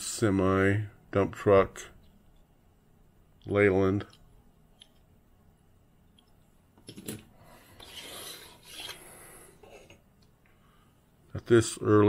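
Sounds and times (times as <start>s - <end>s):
toy trucks rubbing and scraping: 7.7s - 9.2s.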